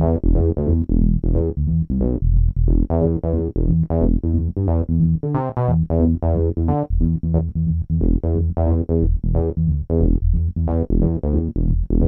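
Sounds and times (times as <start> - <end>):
low synth bass line: 0.0 - 12.0.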